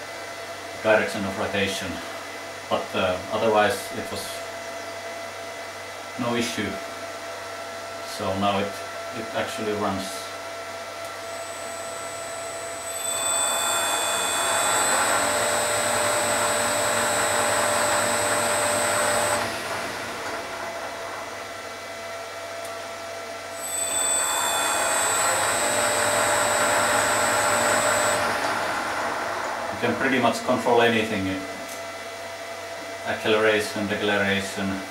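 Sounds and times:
high steady whine: 0.0s - 34.9s
metal lathe motor whirring: 11.2s - 22.0s, 23.4s - 31.5s.

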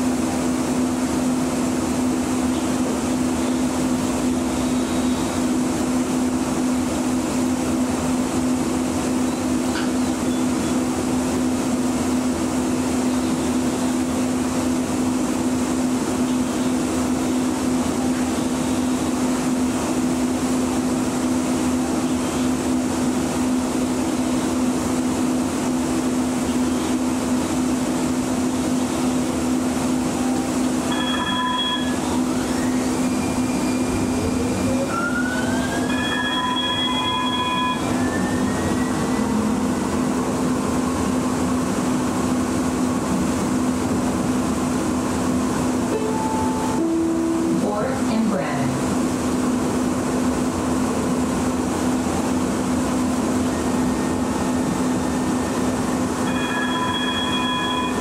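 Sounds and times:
light rail vehicle humming: 0.0s - 58.0s
multi-tone beep: 30.9s - 32.1s, 34.9s - 39.0s, 56.2s - 58.0s.

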